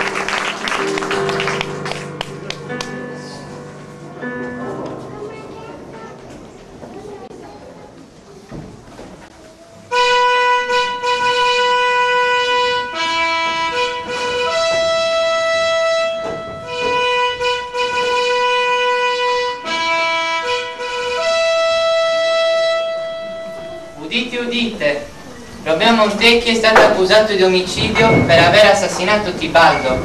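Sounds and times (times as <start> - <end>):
slow solo instrumental melody: 0.0 - 5.4, 9.9 - 25.6.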